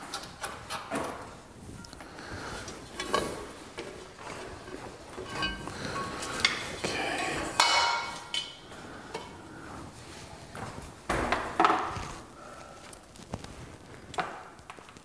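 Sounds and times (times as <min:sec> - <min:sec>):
hose reel parts clinking: 0:02.6 - 0:06.7.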